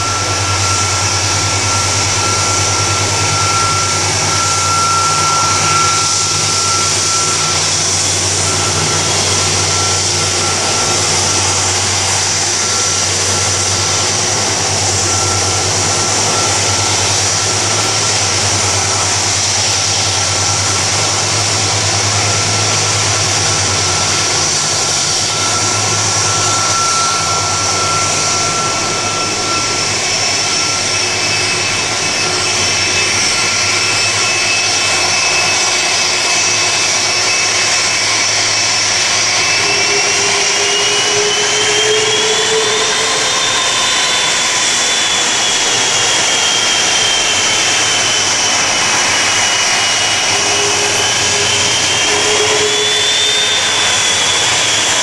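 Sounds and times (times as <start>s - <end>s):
jet engines with high whine: 0.0s - 55.0s.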